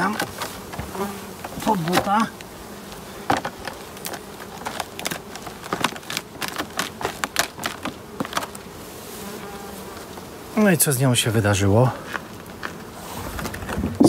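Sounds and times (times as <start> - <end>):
honeybees buzzing: 0.0 - 14.0
plastic cover crackling: 3.2 - 8.6.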